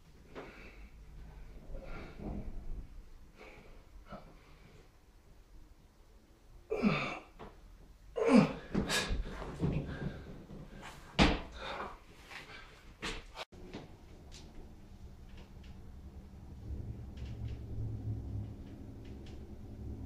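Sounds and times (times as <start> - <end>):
man grunting with effort: 6.7 - 7.4, 8.2 - 9.0
man breathing hard: 8.2 - 12.9.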